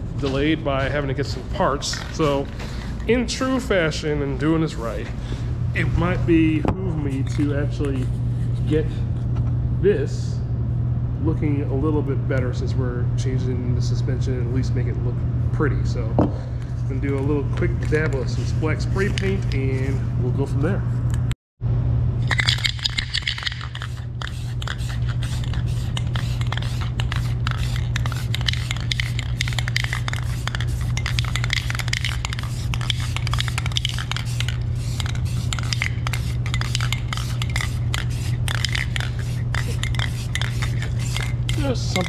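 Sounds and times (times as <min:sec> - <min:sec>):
low hum: 0:00.0 - 0:42.0
spray can rattling: 0:01.8 - 0:02.4, 0:22.3 - 0:42.0
spray can hissing: 0:22.4 - 0:42.0.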